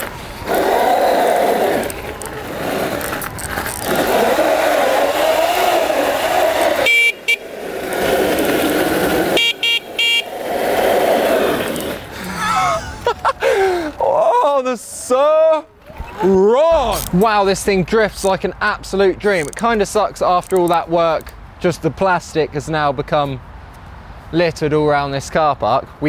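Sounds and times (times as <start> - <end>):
tyres squealing on tarmac: 0.5 - 12.0.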